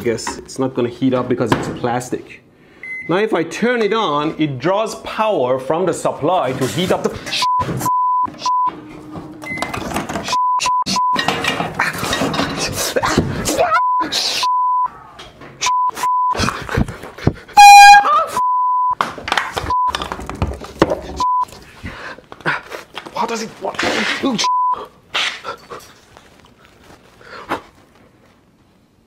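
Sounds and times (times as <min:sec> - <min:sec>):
censor bleeps: 0:07.4 - 0:08.8, 0:10.3 - 0:11.2, 0:13.7 - 0:14.9, 0:17.6 - 0:19.0, 0:24.4 - 0:24.8
man shouting frantically: 0:13.0 - 0:14.2
loud horn-like blare: 0:17.6 - 0:18.2.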